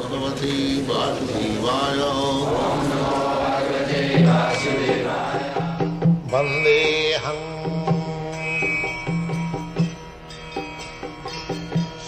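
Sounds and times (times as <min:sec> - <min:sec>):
person chanting: 0:00.0 - 0:08.7.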